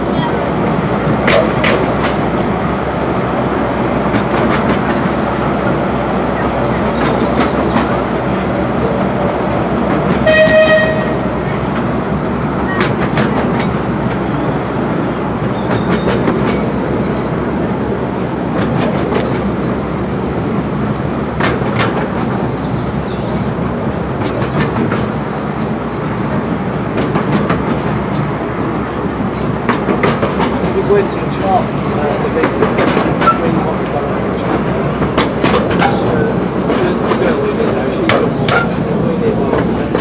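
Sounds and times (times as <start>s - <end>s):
train wheels rumbling on track: 0.0s - 40.0s
locomotive high toot: 10.2s - 11.6s.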